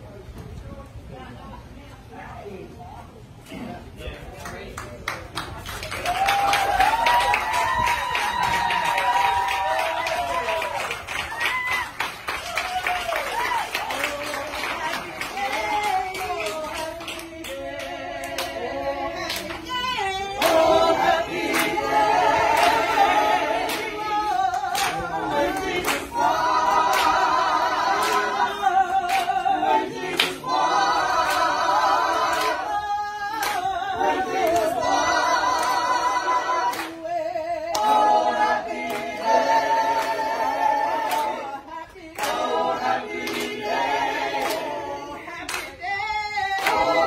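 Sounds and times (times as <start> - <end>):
group singing a cappella: 13.4 - 47.0
hand claps: 19.3 - 19.8, 20.4 - 20.7, 21.4 - 21.8, 22.5 - 22.9, 23.6 - 27.2, 27.9 - 28.4, 29.0 - 30.5, 31.2 - 31.6, 32.3 - 32.6, 33.4 - 33.7, 34.3 - 34.8, 35.5 - 35.8, 36.6 - 37.0, 37.7 - 38.1, 41.1 - 41.4, 42.2 - 42.5, 43.2 - 43.6, 44.3 - 44.8, 45.4 - 45.8, 46.6 - 47.0.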